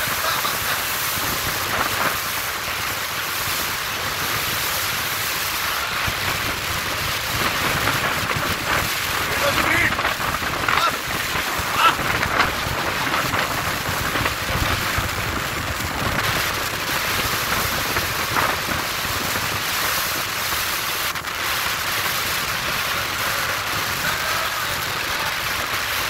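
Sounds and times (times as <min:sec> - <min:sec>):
rush of wind and water: 0:00.0 - 0:26.0
speedboat running: 0:00.0 - 0:26.0
wind buffeting microphone: 0:00.0 - 0:26.0.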